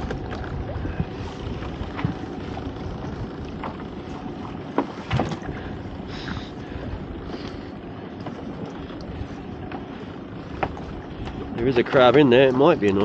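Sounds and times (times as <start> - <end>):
sea rushing: 0.0 - 13.0
wind on microphone: 0.0 - 13.0.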